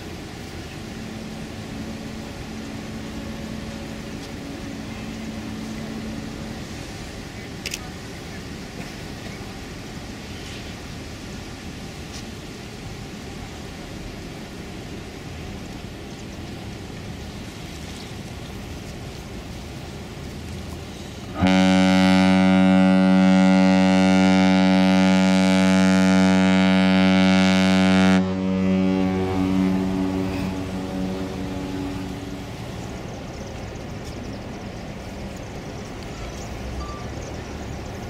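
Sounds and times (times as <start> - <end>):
ship horn deep blast: 0.8 - 7.4, 21.3 - 32.8
background rumble: 12.9 - 38.0.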